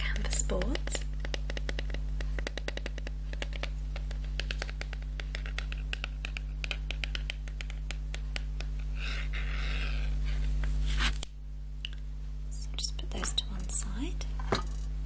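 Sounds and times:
fingers tapping on canvas boards: 0:00.5 - 0:08.8.

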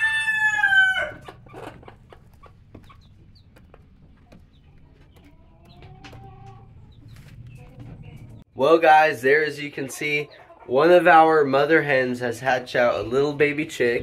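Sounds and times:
rooster crowing: 0:00.0 - 0:01.2
hen clucking softly: 0:01.0 - 0:08.3.

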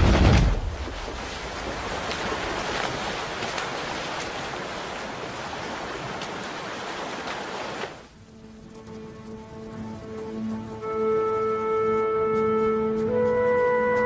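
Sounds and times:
heavy splash into water: 0:00.0 - 0:08.0
animal thrashing in water: 0:00.0 - 0:08.1
rushing churning water: 0:00.0 - 0:12.0.

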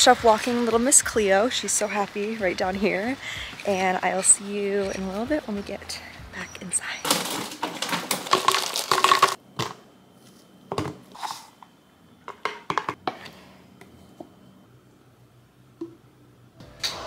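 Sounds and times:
fruit rattling into blender cup: 0:07.1 - 0:09.4.

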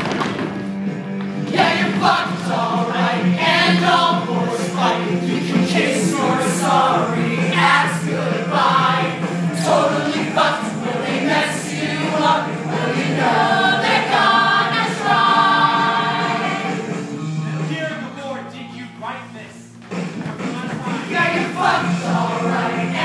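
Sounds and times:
musical accompaniment: 0:00.0 - 0:23.0
cast singing in chorus: 0:01.5 - 0:17.0.

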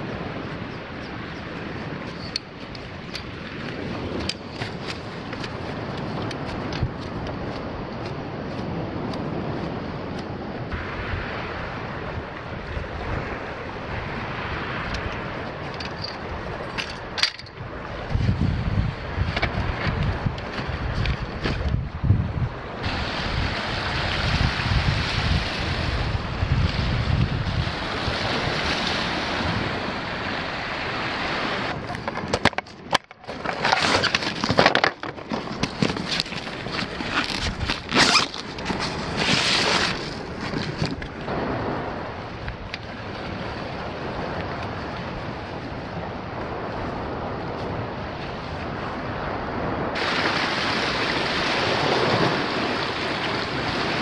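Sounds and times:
sea surf on rocks: 0:00.0 - 0:54.0
wind buffeting microphone: 0:00.0 - 0:54.0
straps rustling and buckles clicking: 0:31.8 - 0:41.2.

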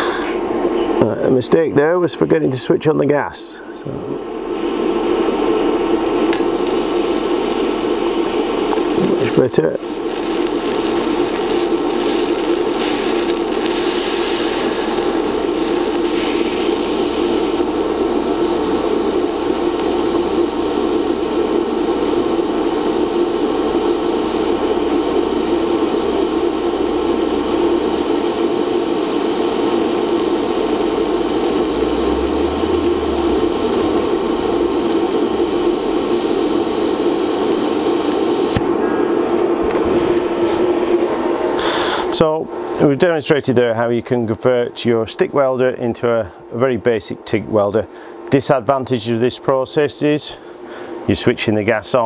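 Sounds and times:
welding arc hissing and humming: 0:04.3 - 0:42.4.

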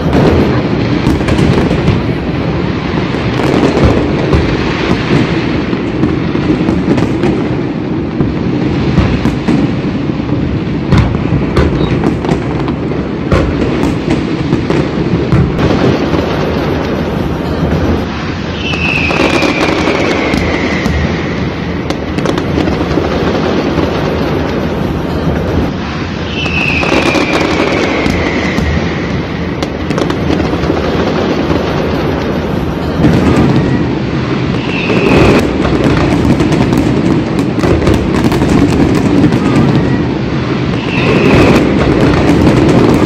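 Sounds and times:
fireworks bursting and crackling: 0:00.0 - 0:43.0
firework whistles falling in pitch: 0:11.6 - 0:12.4, 0:17.4 - 0:22.4, 0:25.1 - 0:30.5, 0:32.8 - 0:43.0.

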